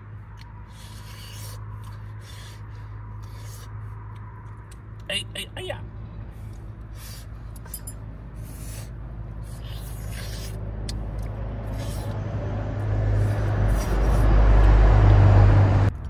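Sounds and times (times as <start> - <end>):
highway traffic rumble: 0.0 - 16.0
scratchy scraping noises: 0.7 - 4.1, 8.4 - 10.6, 11.6 - 14.7.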